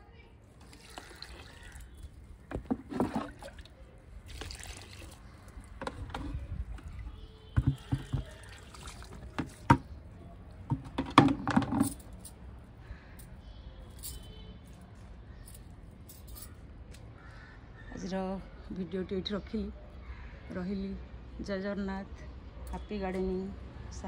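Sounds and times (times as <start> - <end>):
liquid splashing onto soil: 0.6 - 2.2, 2.9 - 5.8, 7.7 - 9.7.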